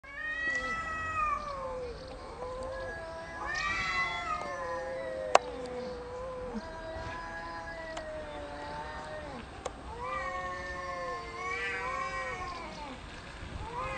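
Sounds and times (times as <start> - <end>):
cats yowling: 0.0 - 13.9.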